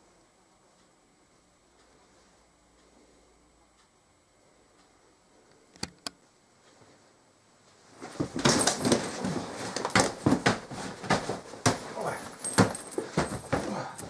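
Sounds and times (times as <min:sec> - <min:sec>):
fabric and buckles rustling: 0:07.7 - 0:14.0
body landing on carpeted floor: 0:08.0 - 0:14.0
hands slapping a rucksack: 0:08.0 - 0:14.0.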